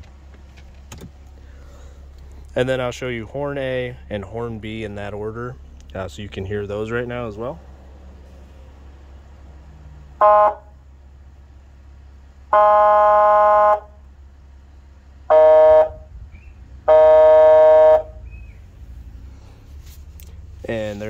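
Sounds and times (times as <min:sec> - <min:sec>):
electronic air horn blasts: 0:10.2 - 0:10.8, 0:12.5 - 0:14.0, 0:15.2 - 0:16.2, 0:16.8 - 0:18.3.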